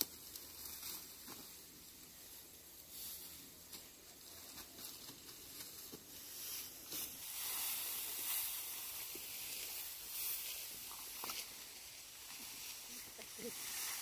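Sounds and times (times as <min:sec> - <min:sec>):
rustling hiss: 0:00.0 - 0:14.0.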